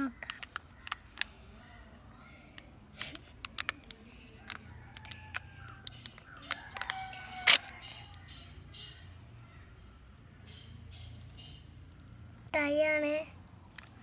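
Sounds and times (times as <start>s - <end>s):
foil wrapper crinkling and tearing: 3.0s - 7.7s.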